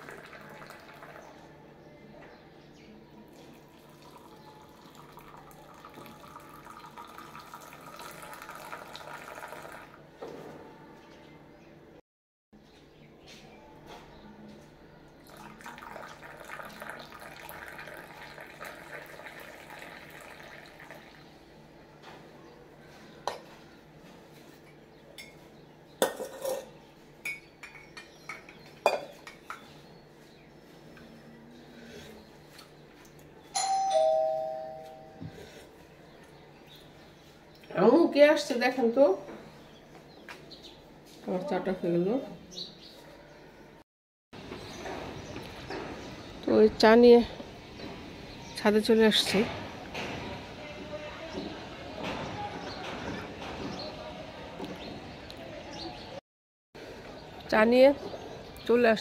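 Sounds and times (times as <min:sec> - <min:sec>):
liquid pouring into mug: 0:00.0 - 0:01.2, 0:03.5 - 0:10.0, 0:15.2 - 0:21.3.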